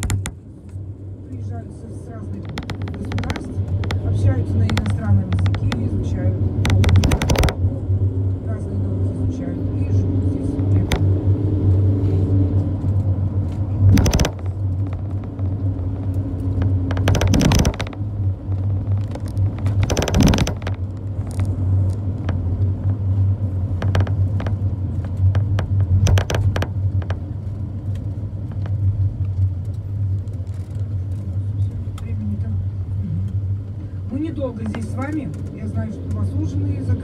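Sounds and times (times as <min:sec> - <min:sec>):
small clicks and knocks: 0:00.0 - 0:00.8, 0:02.4 - 0:05.9, 0:06.6 - 0:07.6, 0:12.8 - 0:31.2
vehicle engine and road drone: 0:00.0 - 0:37.0
loud rattling bursts: 0:06.6 - 0:07.6, 0:13.8 - 0:21.4, 0:25.2 - 0:27.3.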